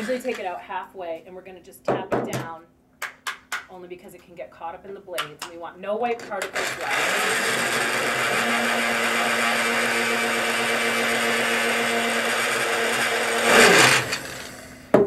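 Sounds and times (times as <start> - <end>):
electric blade grinder running: 0.0 - 0.4, 6.2 - 14.8.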